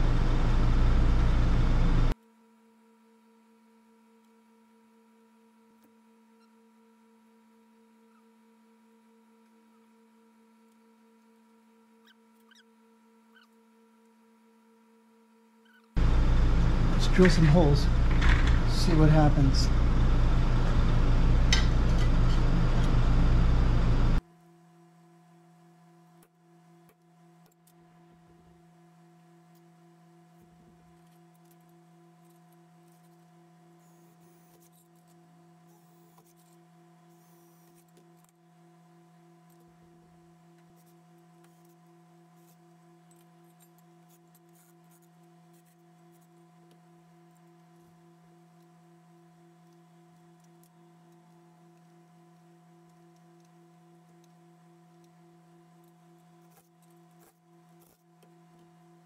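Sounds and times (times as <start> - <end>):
faint pulsing hum: 0.0 - 2.2, 6.2 - 26.8.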